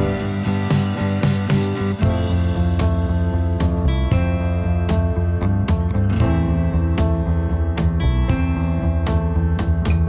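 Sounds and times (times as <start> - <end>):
guitar background music: 0.0 - 10.0.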